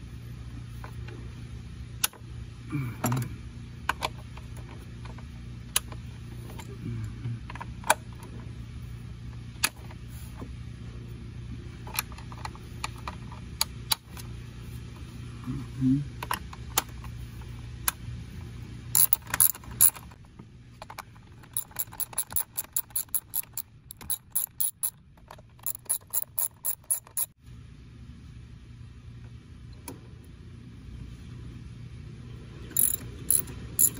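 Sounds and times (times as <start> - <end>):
ratchet wrench clicking: 19.0 - 20.1, 21.4 - 25.0, 25.6 - 27.3, 32.8 - 33.9.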